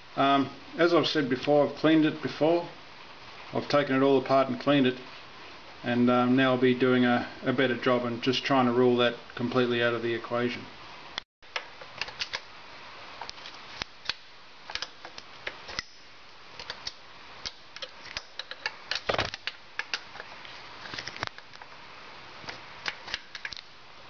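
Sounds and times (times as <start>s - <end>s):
steady background hiss: 0.0s - 24.0s
metallic clicks of hand tool: 16.6s - 20.3s.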